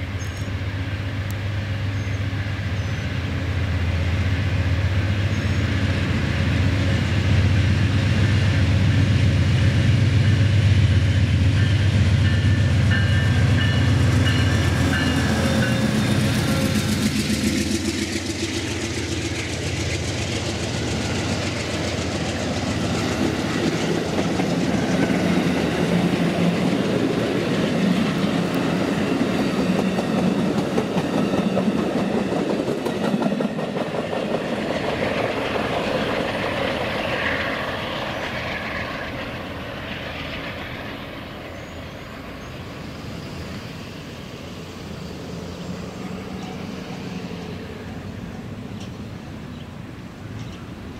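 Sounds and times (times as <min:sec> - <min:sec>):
diesel locomotive engine drone: 0:00.0 - 0:50.9
train wheels clickety-clack: 0:11.3 - 0:41.6, 0:48.6 - 0:49.6, 0:50.2 - 0:50.9.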